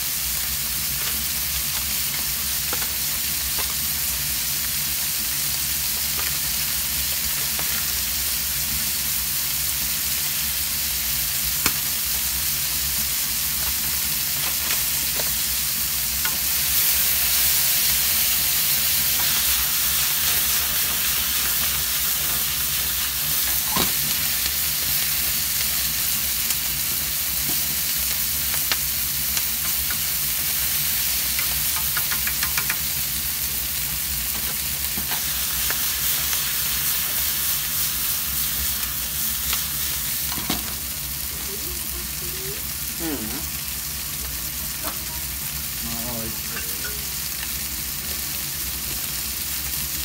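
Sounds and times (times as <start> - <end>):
food sizzling in a frying pan: 0.0 - 50.0
wooden utensil tapping pan: 31.7 - 32.8.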